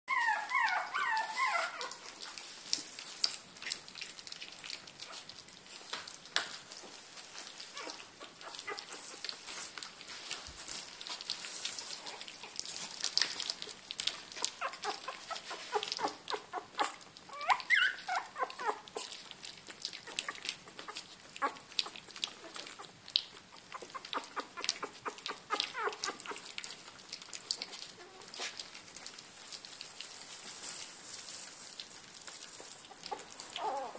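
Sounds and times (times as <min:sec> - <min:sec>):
puppy whines: 0:00.1 - 0:02.2, 0:07.6 - 0:09.7, 0:11.8 - 0:28.8, 0:32.5 - 0:33.9
puppies lapping food: 0:00.1 - 0:33.9.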